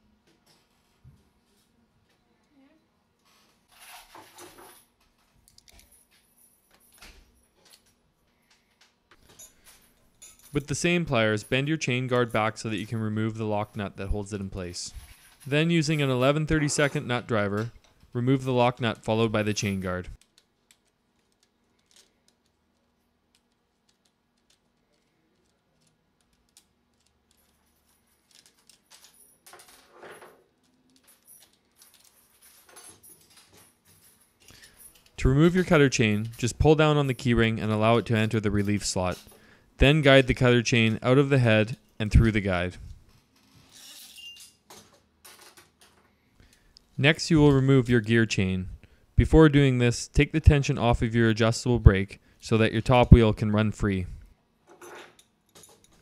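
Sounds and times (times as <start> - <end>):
metal chain rattling and scraping: 3.3 - 46.1, 54.6 - 56.0.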